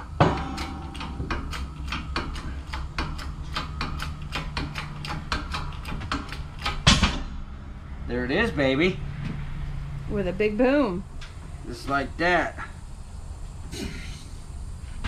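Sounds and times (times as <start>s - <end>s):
bearing breaking free bang: 0.0s - 4.6s, 6.7s - 8.1s.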